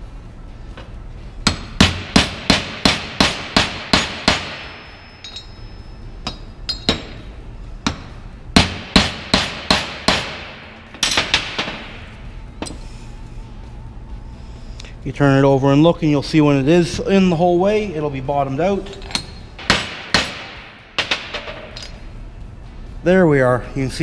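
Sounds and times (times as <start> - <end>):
hammer striking metal socket: 0.8 - 10.3, 10.9 - 11.9.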